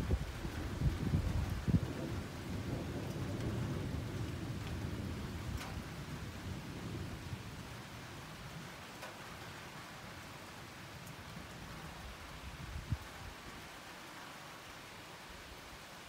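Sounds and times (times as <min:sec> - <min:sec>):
wind buffeting microphone: 0:00.0 - 0:07.2, 0:12.5 - 0:13.3
thunder rumbling: 0:00.0 - 0:08.7.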